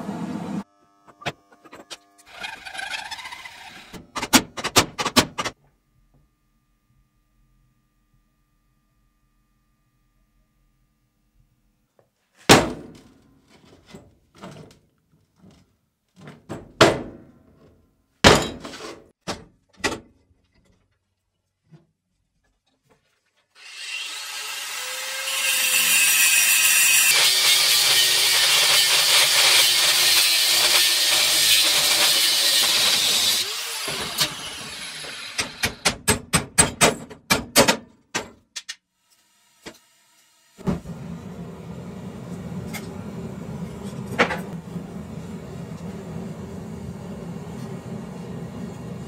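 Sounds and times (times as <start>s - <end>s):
loud metal cutting noise: 1.6s - 4.1s, 23.6s - 35.9s
gas forge rushing: 40.6s - 49.0s.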